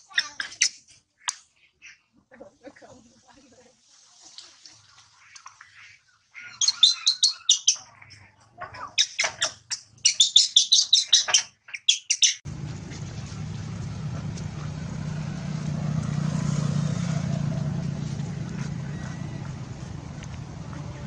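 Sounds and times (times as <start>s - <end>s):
baby monkey screaming: 6.4s - 7.9s
low rumble: 12.5s - 21.0s.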